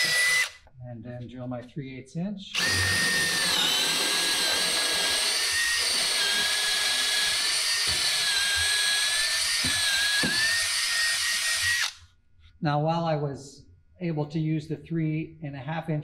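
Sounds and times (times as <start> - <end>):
cordless drill boring into wood: 0.0 - 0.6, 2.5 - 12.0.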